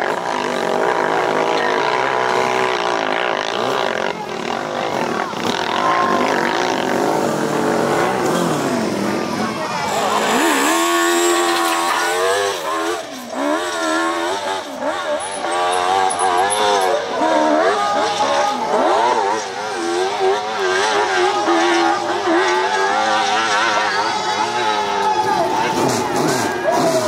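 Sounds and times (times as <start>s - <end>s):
motorcycle engine revving hard: 0.0s - 27.0s.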